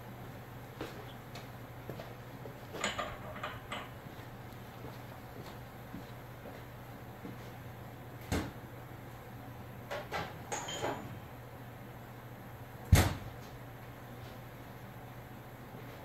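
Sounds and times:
steady low hum: 0.0 - 10.4, 11.2 - 16.0.

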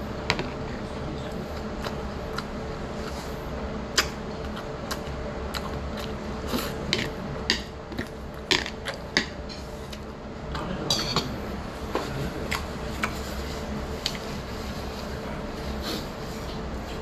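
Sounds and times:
steady low hum: 0.0 - 17.0
person chewing food: 1.5 - 10.1, 12.1 - 14.3.

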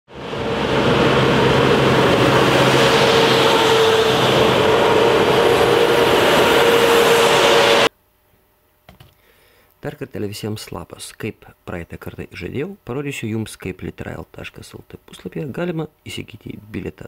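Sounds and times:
diesel train rumbling past: 0.1 - 7.9.

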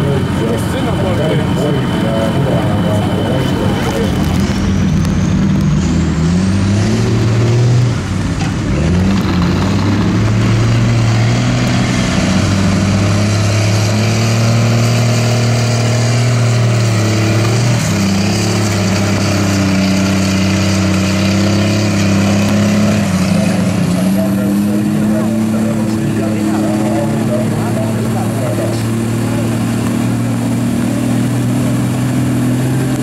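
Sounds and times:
truck engine revving in mud: 0.0 - 33.0.

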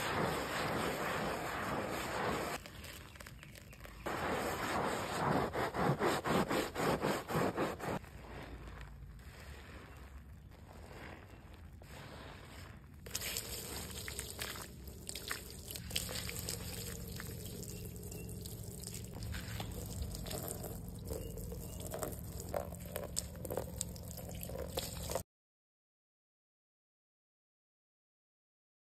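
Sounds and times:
water splashing on rubber mat: 0.0 - 6.5, 13.0 - 25.2.

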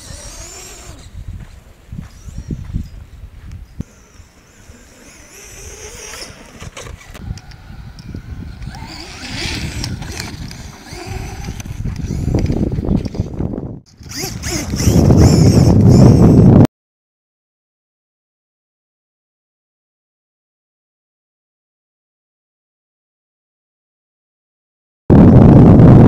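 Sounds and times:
electric motor whine: 0.0 - 2.9, 3.8 - 16.6.

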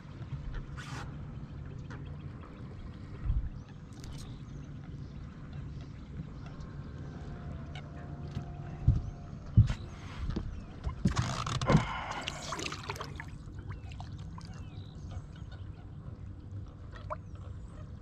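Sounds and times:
water gurgling and trickling: 11.1 - 15.5, 16.9 - 17.5
water splashing: 11.7 - 14.7.

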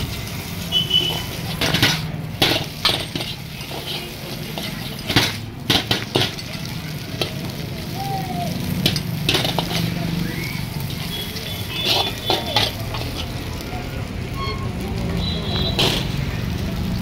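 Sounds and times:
hot oil sizzling: 0.0 - 17.0
metal ladle scraping a wok: 0.6 - 6.5, 8.8 - 10.0, 10.6 - 13.4, 15.7 - 16.3.

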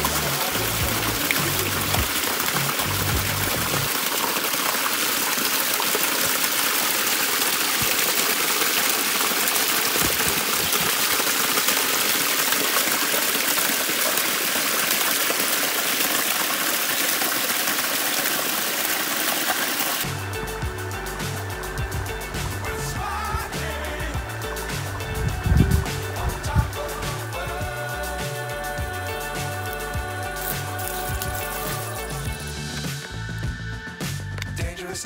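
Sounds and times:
waterfall splashing onto stones: 0.0 - 20.1, 29.4 - 32.4.

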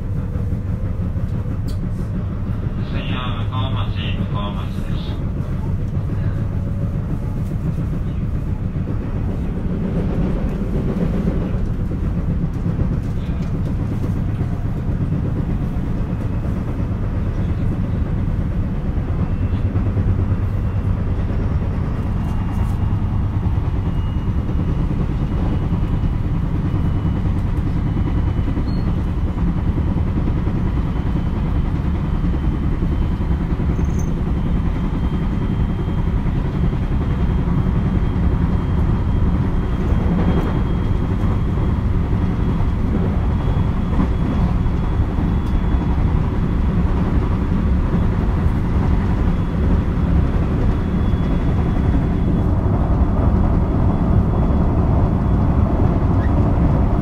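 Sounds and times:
rhythmic wheel pounding: 0.0 - 57.0
train running noise: 0.0 - 57.0
faint high whine: 32.2 - 57.0.

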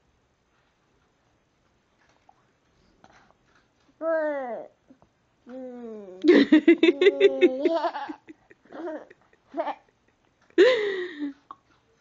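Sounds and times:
toddler vocal sounds: 4.0 - 9.8
toddler laughing: 6.2 - 9.9.

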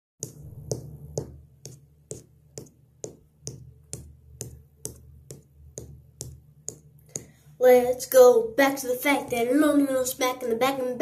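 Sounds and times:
low steady hum: 0.2 - 11.0.

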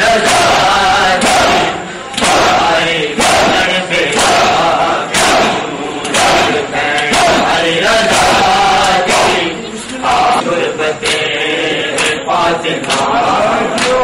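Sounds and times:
crowd of men chanting: 0.0 - 14.0
hands slapping bare chests: 1.2 - 2.6, 11.9 - 12.2, 12.8 - 13.2.

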